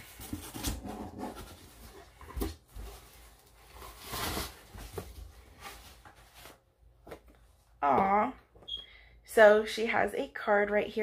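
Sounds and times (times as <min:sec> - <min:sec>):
paper and cardboard rustling: 0:00.0 - 0:07.4.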